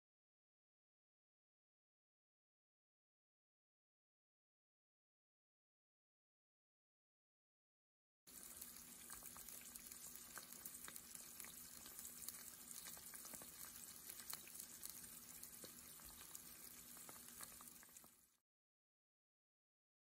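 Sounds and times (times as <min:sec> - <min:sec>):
omelet sizzling in a pan: 0:08.3 - 0:18.4.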